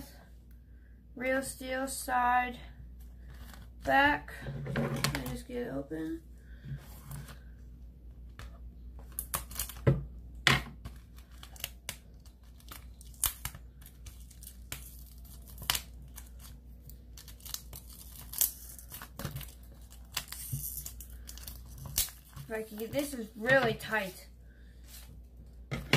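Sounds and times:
plastic wrapping crinkling: 0:10.8 - 0:24.1.

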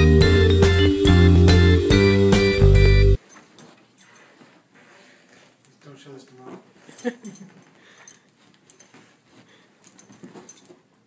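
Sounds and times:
guitar-led background music: 0:00.0 - 0:03.2.

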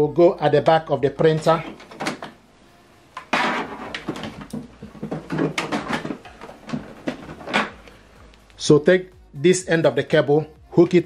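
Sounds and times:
handling noise rustles and knocks: 0:03.2 - 0:08.0.

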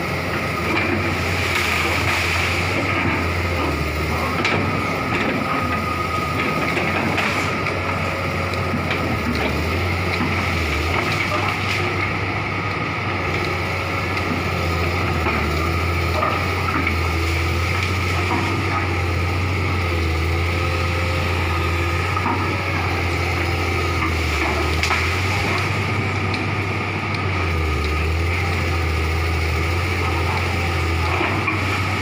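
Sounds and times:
diesel engine running under load: 0:00.0 - 0:32.0.

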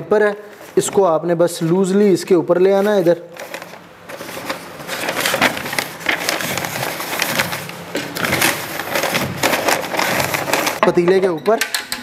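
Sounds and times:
paper rustling and crinkling: 0:00.2 - 0:02.0, 0:02.7 - 0:10.8.

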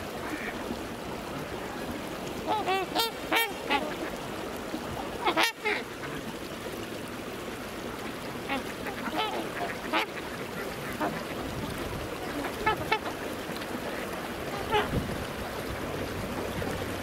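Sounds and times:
waterfowl honking: 0:00.2 - 0:00.6, 0:02.4 - 0:04.2, 0:05.1 - 0:06.3, 0:08.4 - 0:15.0.

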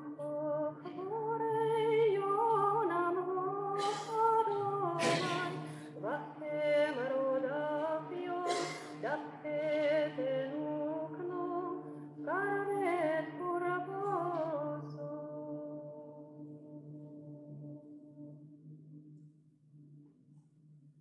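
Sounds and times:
choir singing a hymn: 0:02.2 - 0:11.0
low drone note: 0:03.8 - 0:06.1.

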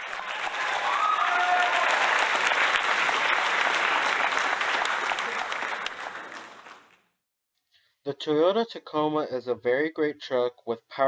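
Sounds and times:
audience applause: 0:00.0 - 0:07.0.

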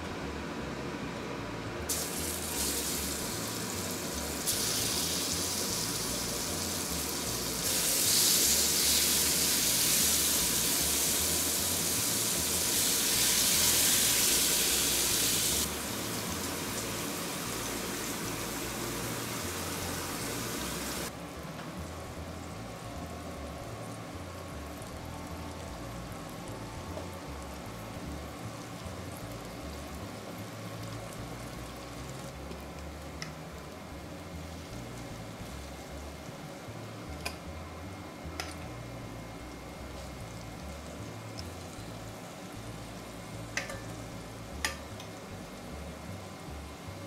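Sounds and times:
meat sizzling in butter: 0:01.9 - 0:21.1.

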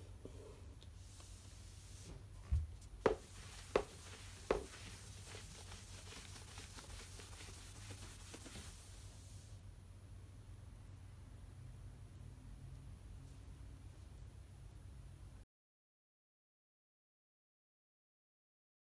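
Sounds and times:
cloth rubbing on wooden floor: 0:01.0 - 0:09.6.

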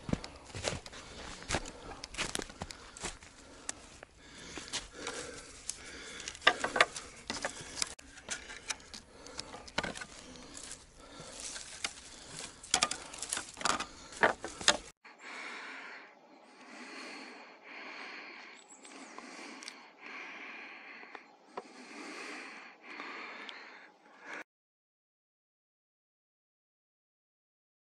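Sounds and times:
footsteps crunching through leaves and snow: 0:00.0 - 0:06.3, 0:09.9 - 0:14.9
breathy puffs: 0:00.0 - 0:24.4.

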